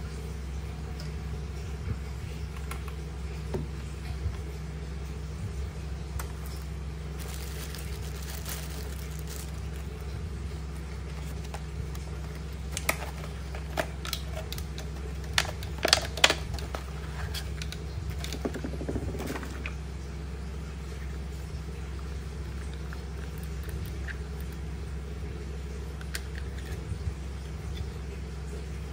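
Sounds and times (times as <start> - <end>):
steady low hum: 0.0 - 28.9
plastic packaging crackling: 6.2 - 19.8, 22.5 - 24.7.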